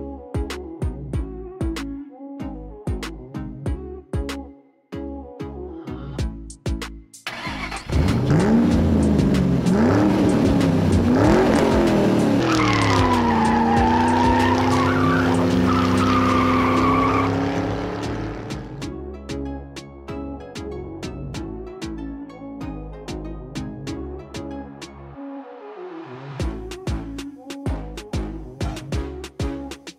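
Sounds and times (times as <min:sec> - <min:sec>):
tire screech: 0:07.3 - 0:18.8
sports car engine revving: 0:07.5 - 0:18.8.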